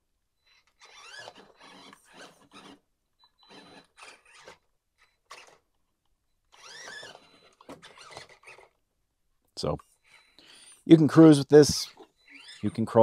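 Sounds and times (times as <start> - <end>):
electric motor whining: 0.5 - 4.7, 6.5 - 8.8, 11.7 - 13.0.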